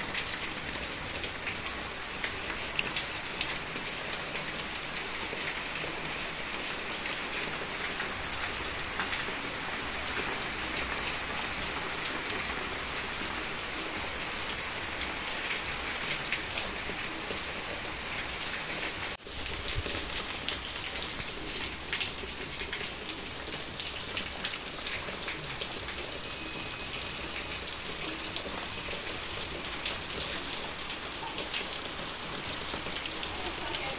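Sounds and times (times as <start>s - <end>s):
steady rain falling: 0.0s - 33.9s.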